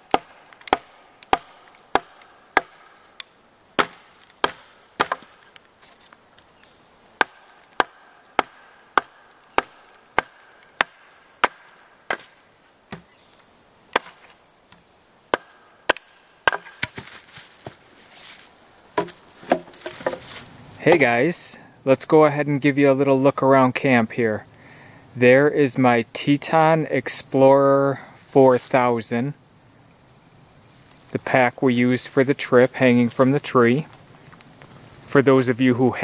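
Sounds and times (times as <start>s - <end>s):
blade chopping wood: 0.0s - 6.1s, 7.2s - 13.1s, 13.9s - 17.8s, 19.0s - 21.1s.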